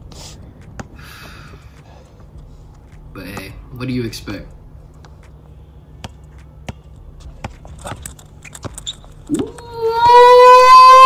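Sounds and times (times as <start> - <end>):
basketball bouncing on hard court: 6.0 - 8.0.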